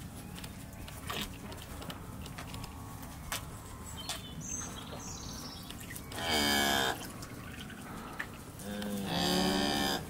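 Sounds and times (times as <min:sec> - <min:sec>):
bird chirping: 0:02.6 - 0:08.2.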